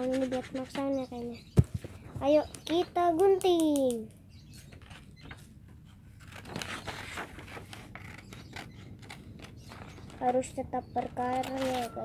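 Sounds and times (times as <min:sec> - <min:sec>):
scissors snipping paper: 0:11.0 - 0:12.0.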